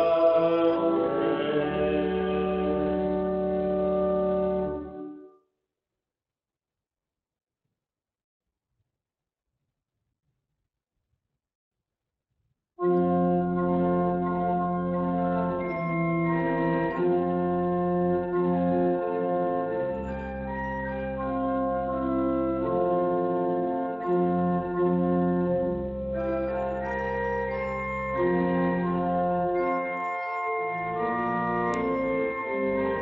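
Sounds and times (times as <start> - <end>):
organ playing sustained chords: 0.0 - 5.3, 12.8 - 33.0.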